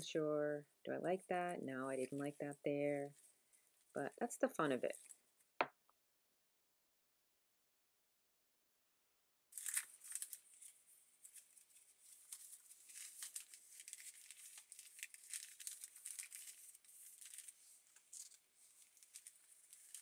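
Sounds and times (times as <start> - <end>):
paper pages rustling and crinkling: 9.6 - 20.0.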